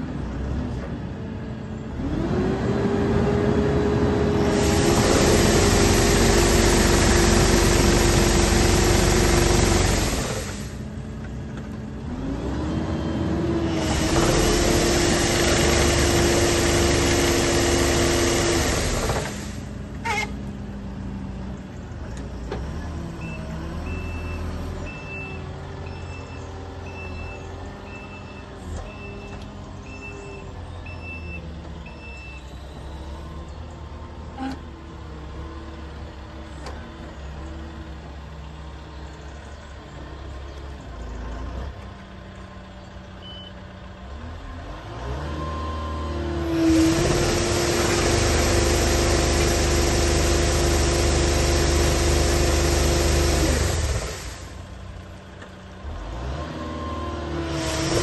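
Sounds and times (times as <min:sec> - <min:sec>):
engine running: 0:00.0 - 0:30.7, 0:46.2 - 0:58.0
reversing alarm beeping: 0:23.2 - 0:32.9.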